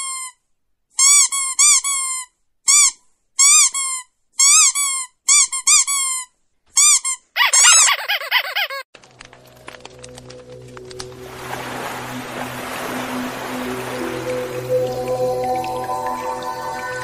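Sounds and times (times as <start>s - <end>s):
high squeaky chirps: 1.0s - 8.9s.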